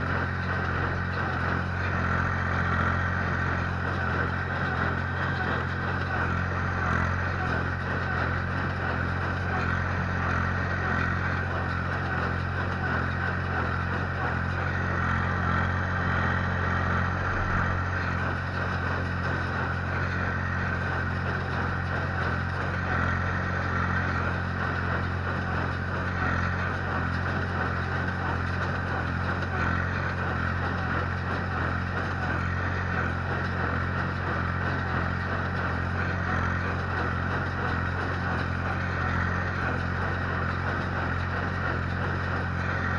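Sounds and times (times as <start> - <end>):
baler running: 0.0 - 42.9
tractor diesel engine under load: 0.0 - 42.9.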